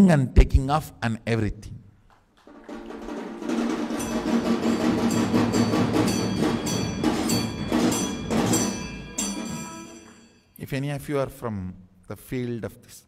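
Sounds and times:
quick percussive beat: 2.5 - 10.2
ringing bell-like notes: 3.9 - 10.7.

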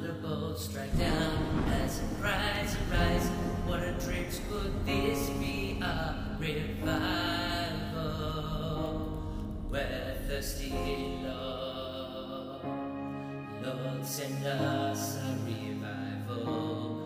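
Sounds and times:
worship music with held notes: 0.0 - 17.0.

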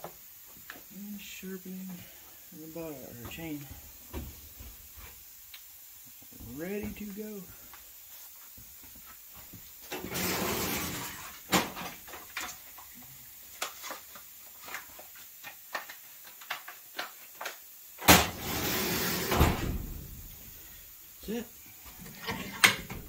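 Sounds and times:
rustling scrape: 10.0 - 11.4, 18.4 - 19.5.

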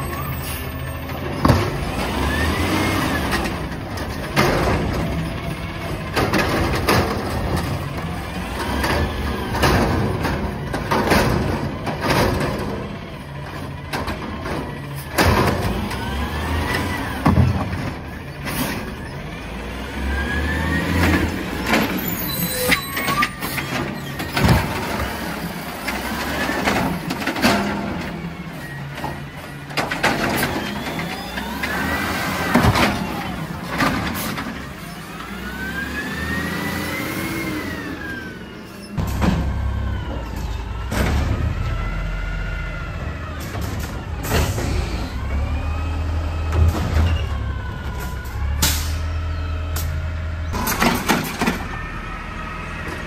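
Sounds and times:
carts banging and clanking: 0.0 - 36.7, 37.3 - 53.0
truck engine revving: 0.0 - 53.0.

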